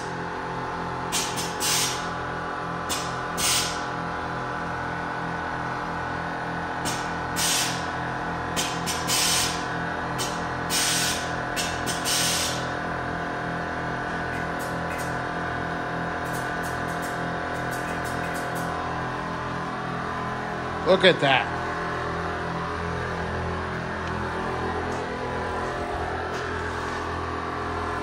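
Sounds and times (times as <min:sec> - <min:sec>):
air valve hisses: 0:11.9 - 0:12.6.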